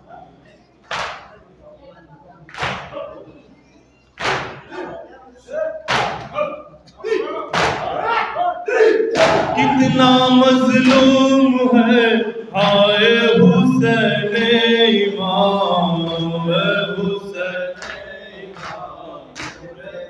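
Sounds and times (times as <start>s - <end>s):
hands slapping chests: 0.9s - 1.3s, 4.2s - 4.6s
men chanting a lament: 4.6s - 20.0s.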